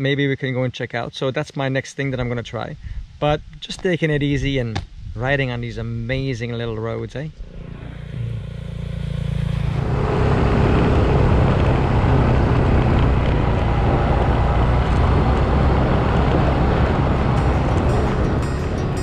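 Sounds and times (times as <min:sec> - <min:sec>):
motorcycle engine running: 0:07.4 - 0:19.0.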